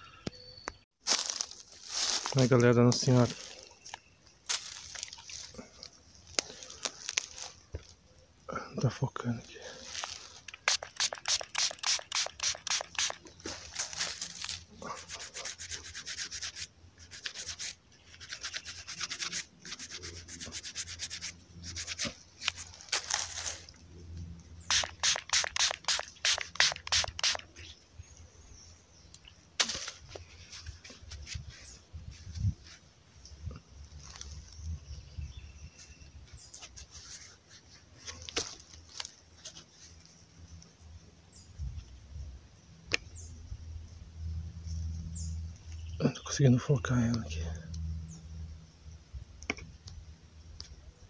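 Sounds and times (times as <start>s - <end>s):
stiff brush scrubbing: 9.7s - 23.8s, 24.6s - 27.6s
gloved hand rubbing figurine: 10.5s - 13.2s, 13.8s - 23.1s, 24.7s - 27.5s.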